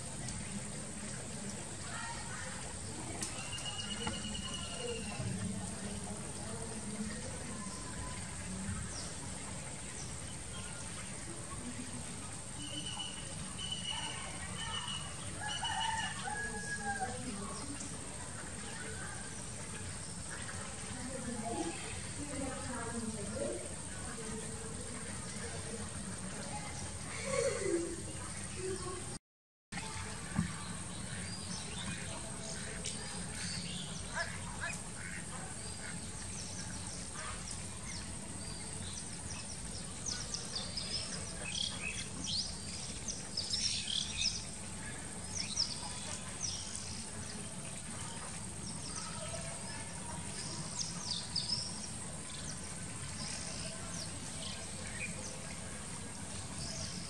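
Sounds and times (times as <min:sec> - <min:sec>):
birds chirping: 0:01.8 - 0:11.8
ducks quacking: 0:33.4 - 0:36.1.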